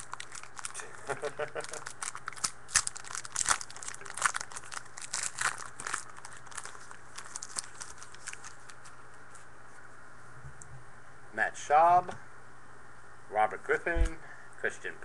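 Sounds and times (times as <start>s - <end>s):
card pack wrapper crinkling: 0.0s - 9.4s.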